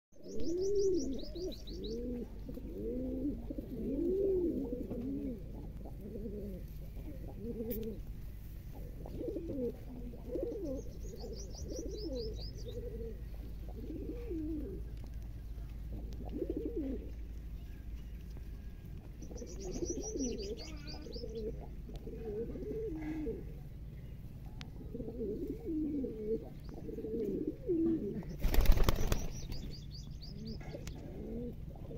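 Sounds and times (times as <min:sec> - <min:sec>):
small bird trill: 0:00.2 - 0:02.1, 0:10.4 - 0:12.9, 0:17.6 - 0:21.6, 0:28.3 - 0:30.7
pigeons cooing: 0:00.2 - 0:17.4, 0:19.2 - 0:23.8, 0:24.4 - 0:29.7, 0:30.3 - 0:31.9.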